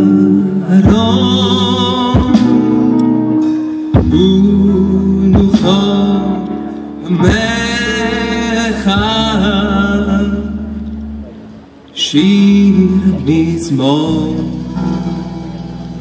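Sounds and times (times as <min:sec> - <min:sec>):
man singing through a pa: 0:00.0 - 0:10.8, 0:11.9 - 0:15.8
live band playing: 0:00.0 - 0:16.0.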